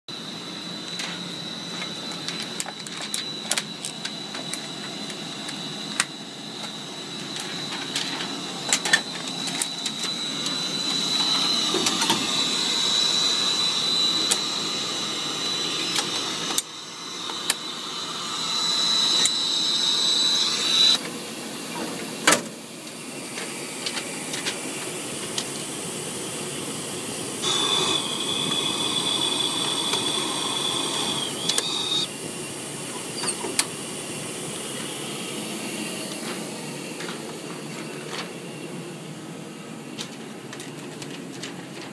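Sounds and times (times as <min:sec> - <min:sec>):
steady machine hiss: 0:00.1 - 0:21.6, 0:22.7 - 0:36.8
high machine whine: 0:00.1 - 0:40.8.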